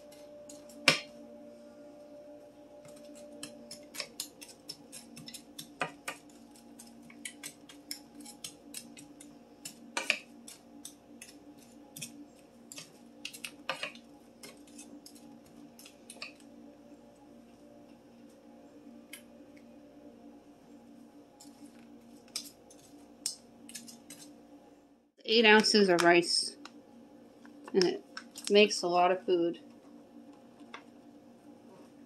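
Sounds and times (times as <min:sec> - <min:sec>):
spatula scraping vegetables in pan: 0:03.1 - 0:16.4, 0:23.6 - 0:24.4.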